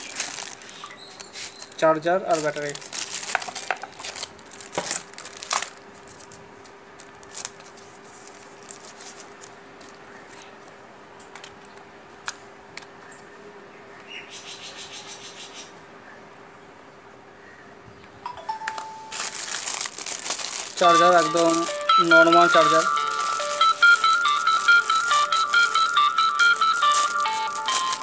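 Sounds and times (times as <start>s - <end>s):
plastic bag crinkle: 0.0s - 10.5s, 19.1s - 28.0s.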